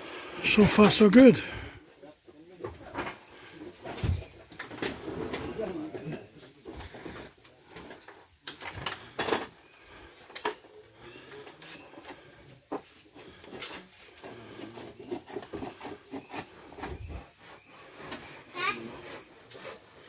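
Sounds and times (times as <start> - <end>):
bamboo knocking and rubbing: 11.6 - 20.0.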